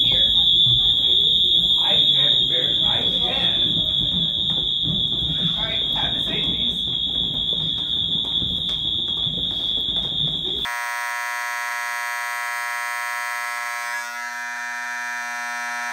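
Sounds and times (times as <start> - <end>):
people walking down stairs: 0.0 - 10.7
buzzy fire alarm horn blare: 0.0 - 15.9
high-pitched fire alarm horn: 0.0 - 15.9.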